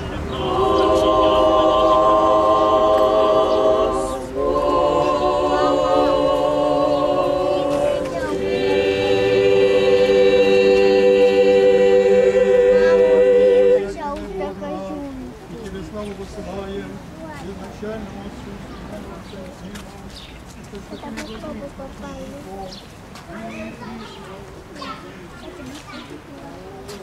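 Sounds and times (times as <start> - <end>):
choir singing unaccompanied: 0.0 - 15.0.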